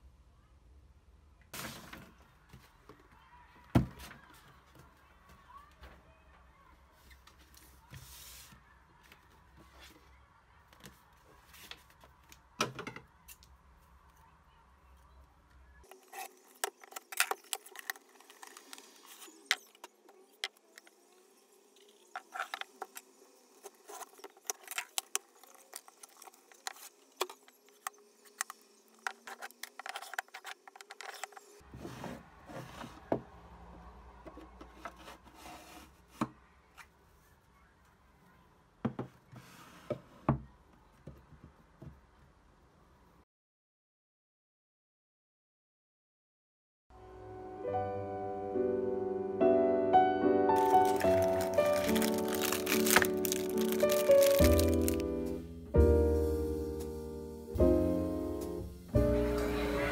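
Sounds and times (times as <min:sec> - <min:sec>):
cardboard packaging rustling: 0:15.9 - 0:19.9, 0:23.6 - 0:31.4, 0:50.6 - 0:55.4.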